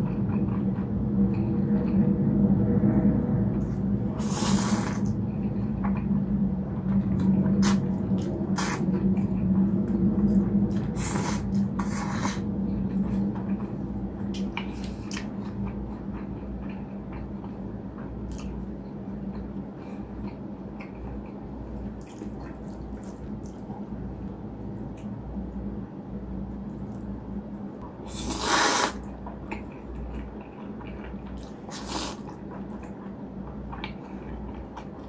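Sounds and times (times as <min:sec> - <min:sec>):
low hum: 0:00.0 - 0:28.1
noodle slurping: 0:04.2 - 0:05.1, 0:10.9 - 0:12.4, 0:28.1 - 0:29.1, 0:31.4 - 0:32.4
wet chewing with smacking: 0:18.3 - 0:18.6, 0:20.2 - 0:25.1, 0:29.0 - 0:35.0.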